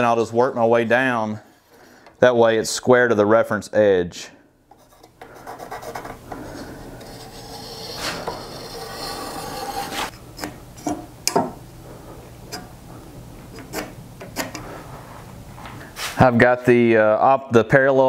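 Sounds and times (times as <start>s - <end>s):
pencil scratching on wood: 4.8s - 10.1s.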